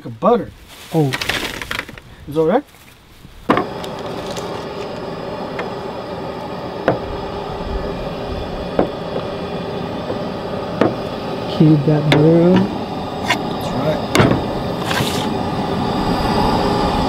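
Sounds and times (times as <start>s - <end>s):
steady hum: 3.4s - 17.0s.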